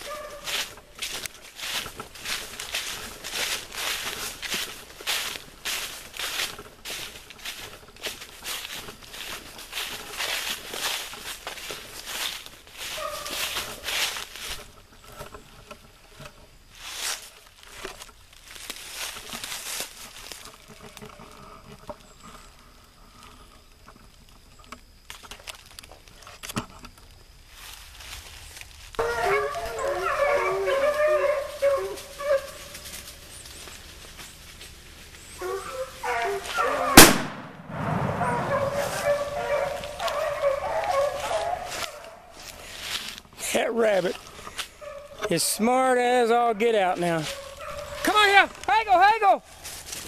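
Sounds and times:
distant hounds baying: 0.0s - 15.3s, 29.0s - 37.1s, 38.0s - 42.9s, 44.1s - 48.6s
rustling in dry brush: 0.0s - 23.6s, 27.3s - 37.3s, 38.0s - 50.0s
twigs snapping: 38.6s - 43.3s.

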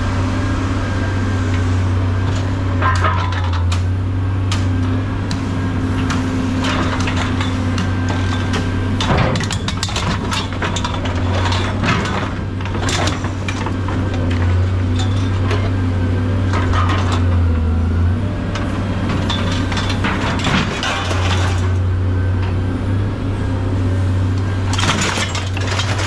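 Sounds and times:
machinery engine hum: 0.0s - 26.0s.

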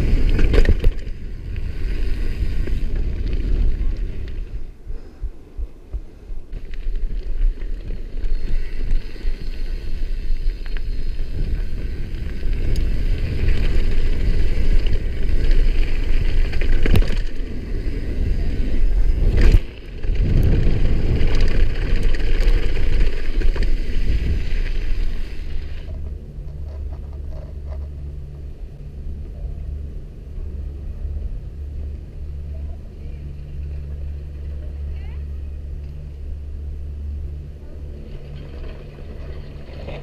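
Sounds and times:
bike tyres rolling over gravel: 0.0s - 4.8s, 5.9s - 40.0s
wind rushing over microphone: 0.0s - 26.7s.

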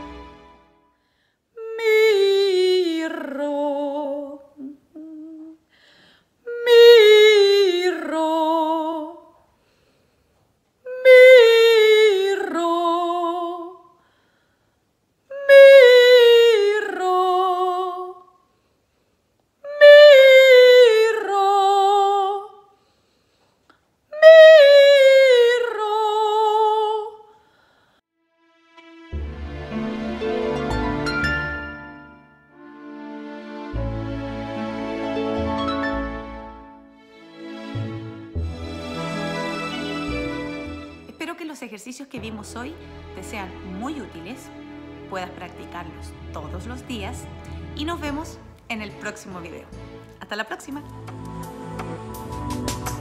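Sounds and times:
woman singing vocal exercise: 1.6s - 5.7s, 6.4s - 9.4s, 10.8s - 14.0s, 15.3s - 18.3s, 19.6s - 22.7s, 24.1s - 27.3s.

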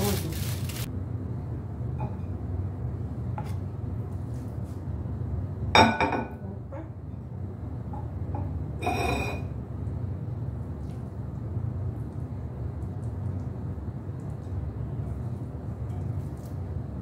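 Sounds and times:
spatula scraping pan and plate: 8.8s - 9.4s.

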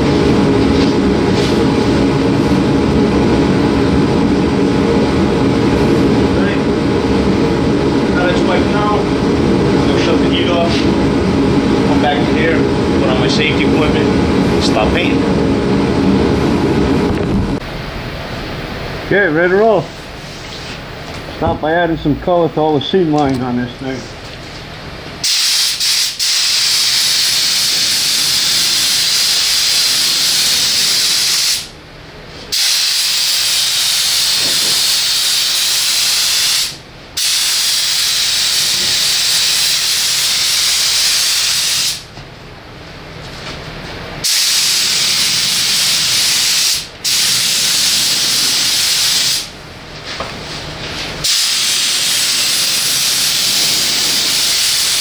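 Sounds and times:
paint spray gun hissing: 25.2s - 31.7s, 32.5s - 42.0s, 44.2s - 49.6s, 51.2s - 55.0s.

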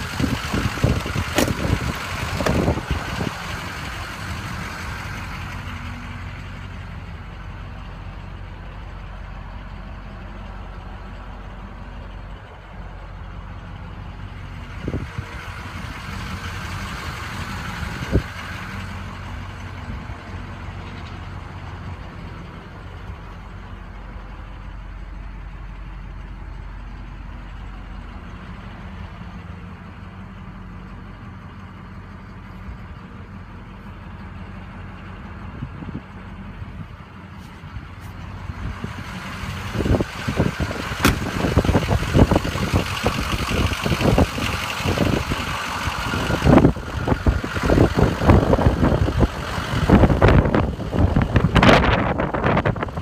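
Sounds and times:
wind buffeting microphone: 0.0s - 3.7s, 39.6s - 53.0s
diesel engine idling: 0.0s - 53.0s.

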